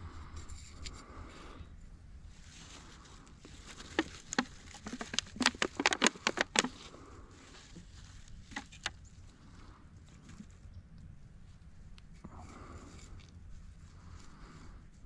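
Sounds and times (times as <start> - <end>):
sharp taps and clicks: 4.0 - 6.8.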